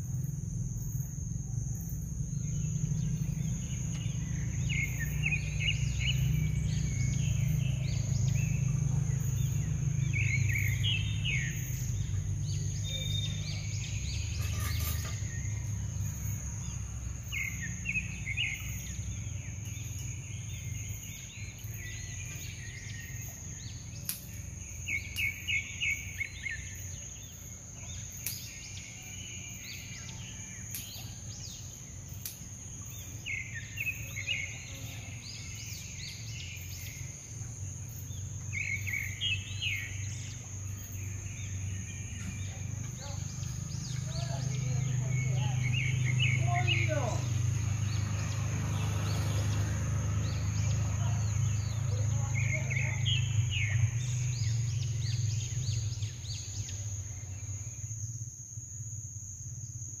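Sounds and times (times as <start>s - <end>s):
low outdoor rumble: 0.0s - 28.0s
birds chirping: 0.2s - 58.0s.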